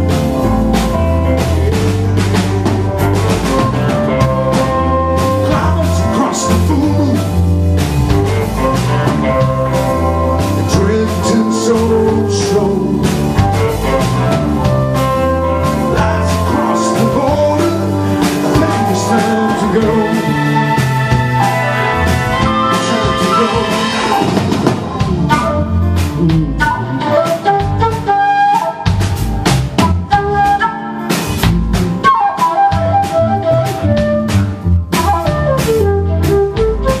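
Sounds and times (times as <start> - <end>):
live rock band playing: 0.0 - 37.0
person singing: 1.4 - 7.4, 8.2 - 14.2, 15.2 - 28.2.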